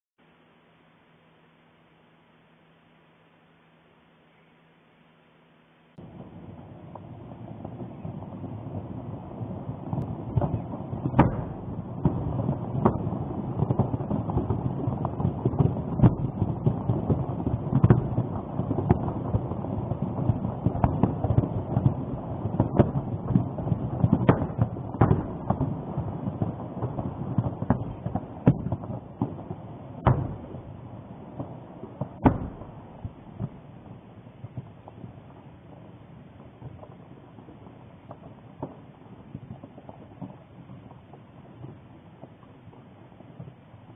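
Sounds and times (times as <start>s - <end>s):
volcanic eruption rumble: 6.0s - 43.9s
sharp cracks and bangs: 6.9s - 33.6s.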